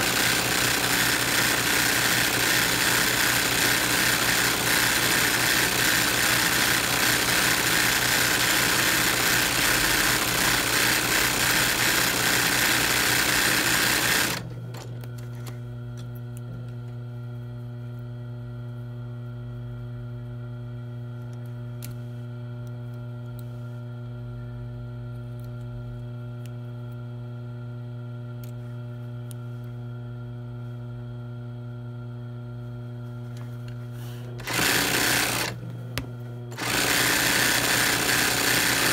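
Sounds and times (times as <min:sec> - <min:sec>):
sewing machine stitching fast: 0:00.0 - 0:14.4, 0:34.4 - 0:35.6, 0:36.5 - 0:38.9
motor hum: 0:00.0 - 0:38.9.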